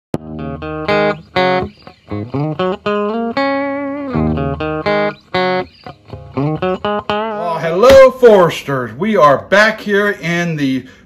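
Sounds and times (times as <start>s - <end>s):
plucked guitar melody: 0.2s - 8.5s.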